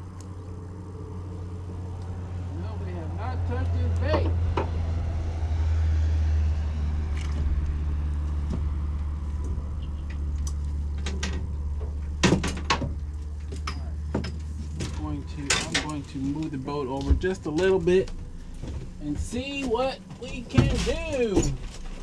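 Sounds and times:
boat motor droning: 0.0 - 21.4.

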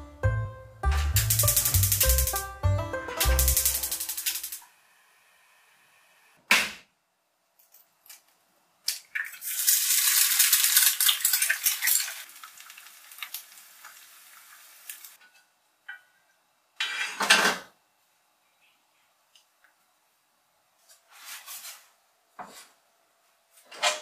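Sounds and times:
egg sizzling in hot oil: 1.2 - 2.4, 3.2 - 4.6, 9.1 - 15.2.

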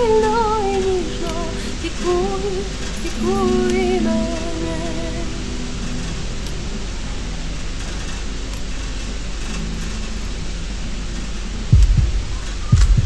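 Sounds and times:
heavy low thump: 11.7 - 13.0.

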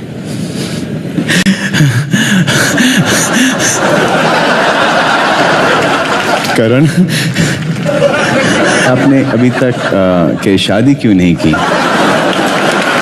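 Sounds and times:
audience laughing: 2.7 - 13.0.

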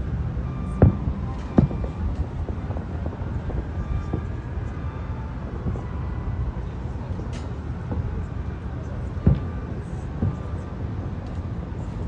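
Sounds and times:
steady low rumble: 0.0 - 12.0
fireworks bangs: 0.5 - 6.7, 7.4 - 11.5
fainter fireworks pops: 0.7 - 4.8, 5.5 - 6.0, 9.1 - 11.5.

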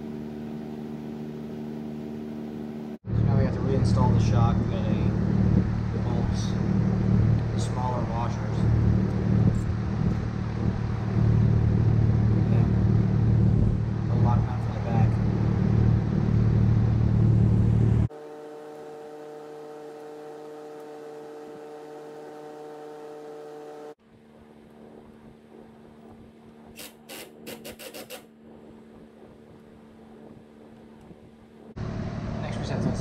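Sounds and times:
steady hum: 0.0 - 33.0
loud low rumble: 3.0 - 18.1
impact driver bursts: 26.8 - 28.3.

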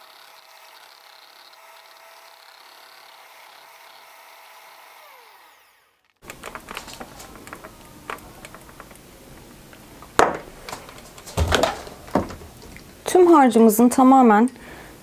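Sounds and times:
hand mixer motor whine: 0.0 - 6.7
mixer handling clicks and knocks: 6.2 - 9.0.

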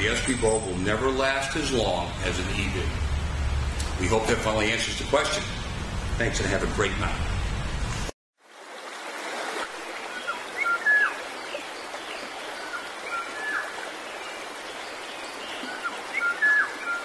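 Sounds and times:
running water: 8.4 - 17.0
bird whistling: 10.2 - 11.2, 15.7 - 17.0.

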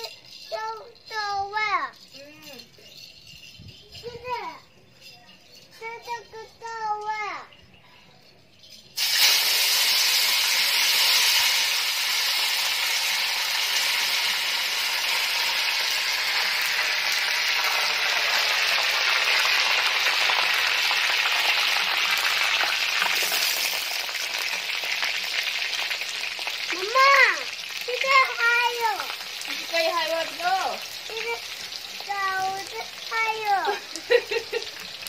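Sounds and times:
greens sizzling in hot oil: 9.0 - 35.0.

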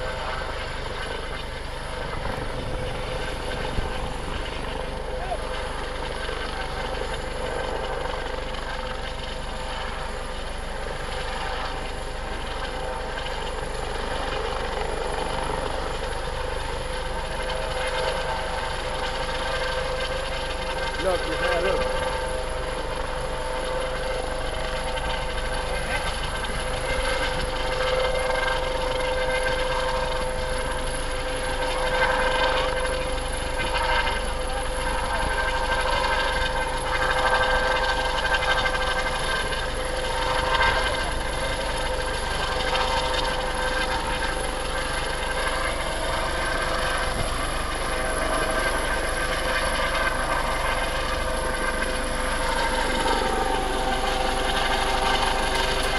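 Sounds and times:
helicopter rotors beating: 0.0 - 55.9
helicopter turbine whine: 0.0 - 55.9.

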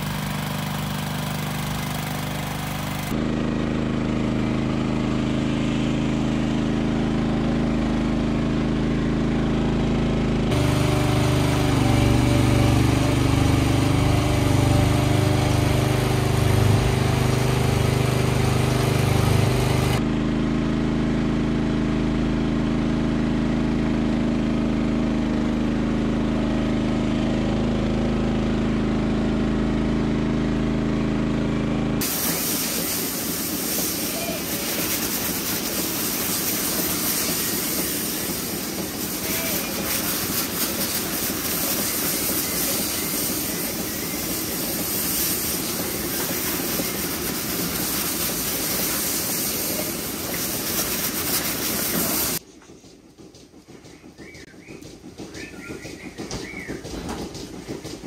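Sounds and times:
water hose spraying: 0.0 - 3.2, 10.5 - 20.0, 32.0 - 52.4
tractor engine running: 0.0 - 58.0.

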